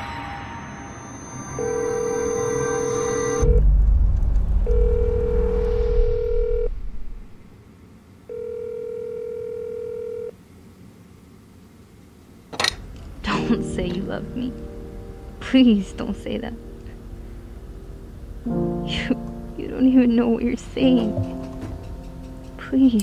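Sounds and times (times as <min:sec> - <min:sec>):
telephone ringback tone: 0:01.1 - 0:03.6, 0:04.7 - 0:06.7, 0:08.3 - 0:10.3
deep low rumble: 0:03.3 - 0:07.6.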